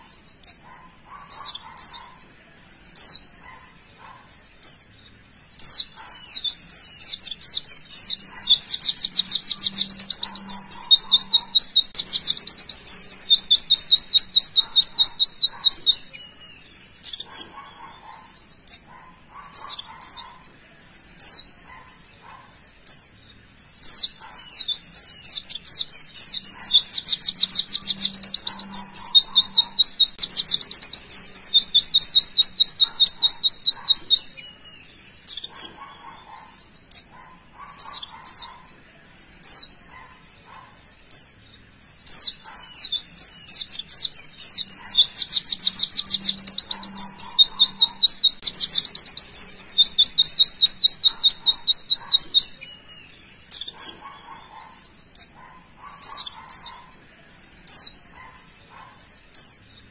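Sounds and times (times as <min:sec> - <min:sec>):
bird singing rapid trills: 0:00.0 - 0:59.9.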